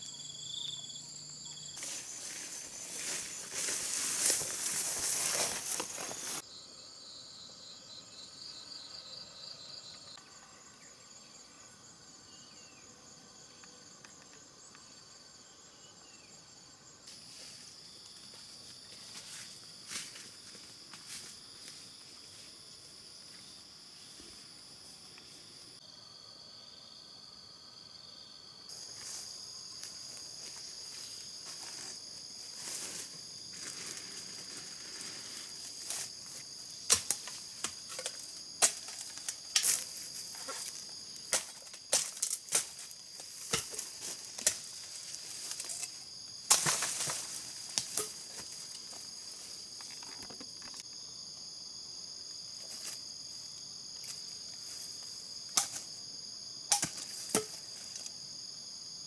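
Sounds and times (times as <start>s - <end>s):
high-pitched insect chorus: 0.0s - 59.0s
sharp snaps and cracks: 36.9s - 39.9s, 41.3s - 43.8s.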